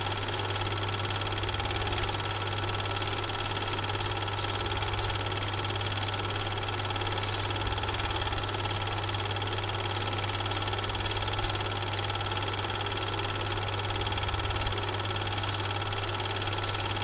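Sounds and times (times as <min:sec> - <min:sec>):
film projector whirring: 0:00.0 - 0:17.0.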